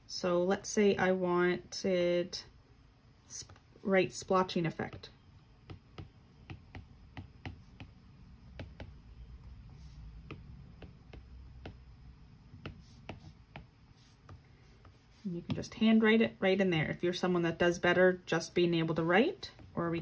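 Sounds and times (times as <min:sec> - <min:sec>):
stylus tapping on glass screen: 0:05.7 - 0:09.0.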